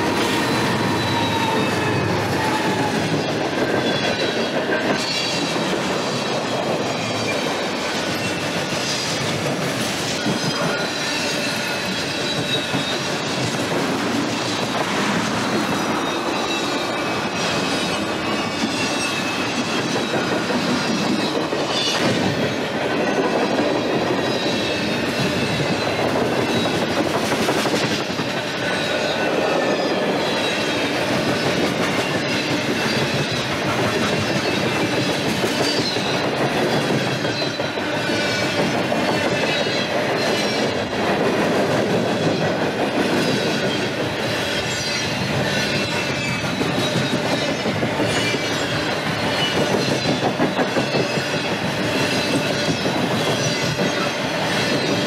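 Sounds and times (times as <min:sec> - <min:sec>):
train wheels clattering over rails: 0:00.0 - 0:55.0
high-pitched wheel squeal: 0:00.3 - 0:05.5.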